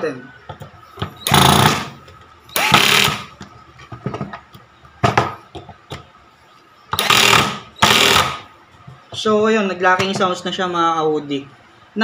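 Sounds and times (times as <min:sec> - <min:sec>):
cordless drill driving screw: 0:01.2 - 0:01.9, 0:02.5 - 0:03.3, 0:07.0 - 0:08.4.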